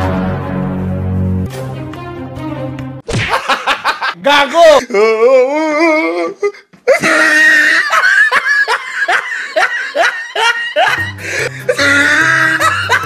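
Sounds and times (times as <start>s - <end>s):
person laughing hard: 3.2s - 4.2s, 6.4s - 13.0s.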